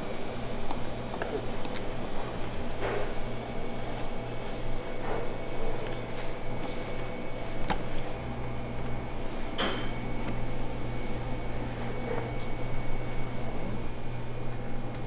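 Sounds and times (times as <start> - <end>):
ventilation fan humming: 0.0 - 15.0.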